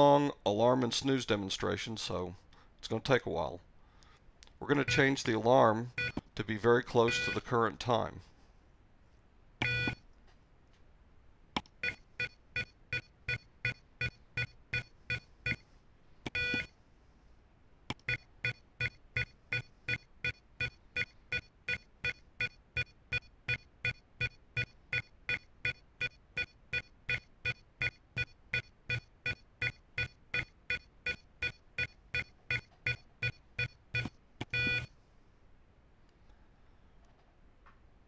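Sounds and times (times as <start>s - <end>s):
short electronic beeps: 4.8s - 5.2s, 6.0s - 6.2s, 7.1s - 7.4s, 9.6s - 10.0s, 11.8s - 15.6s, 16.4s - 16.7s, 18.1s - 34.9s
long electronic beep: 7.1s - 7.4s.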